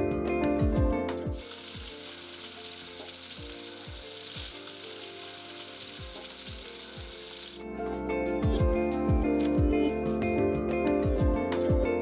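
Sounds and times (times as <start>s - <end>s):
background music with beat: 0.0s - 2.0s, 6.0s - 12.0s
meat sizzling: 1.3s - 7.6s.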